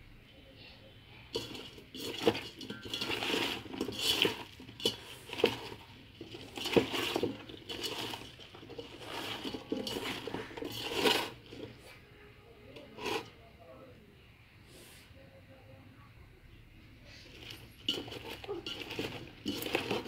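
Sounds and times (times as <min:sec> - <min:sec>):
soft rustling and squishing: 0:00.7 - 0:13.6, 0:16.9 - 0:20.0
vegetables knocking in metal pot: 0:01.3 - 0:11.8, 0:17.3 - 0:20.0.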